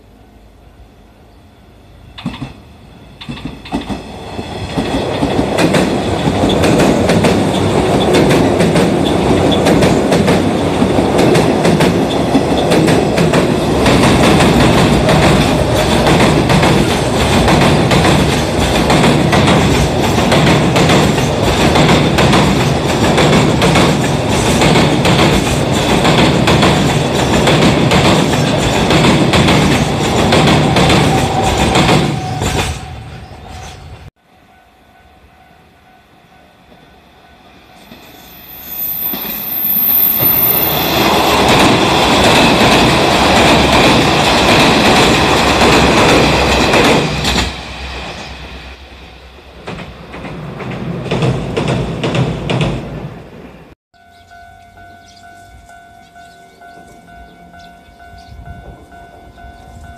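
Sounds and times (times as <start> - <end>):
diesel railcar passing: 0.0 - 59.9
freight train wheels clattering: 3.2 - 32.9, 40.6 - 48.1.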